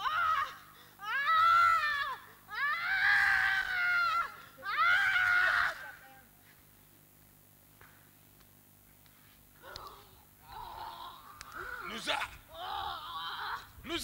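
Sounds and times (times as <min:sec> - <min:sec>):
person screaming: 0:09.6 - 0:13.7.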